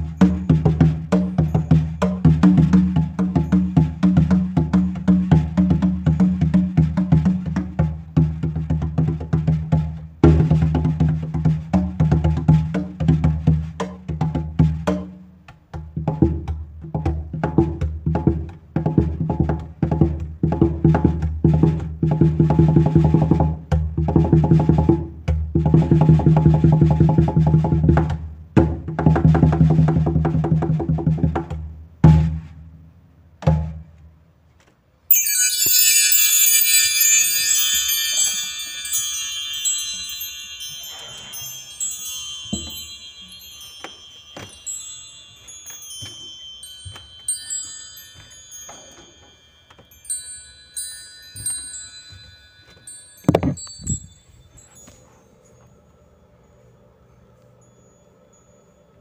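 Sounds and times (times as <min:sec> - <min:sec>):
wind chimes ringing: 0:00.0 - 0:06.5, 0:35.1 - 0:59.0
drums playing rhythmic pattern: 0:00.0 - 0:32.6, 0:35.1 - 0:50.3.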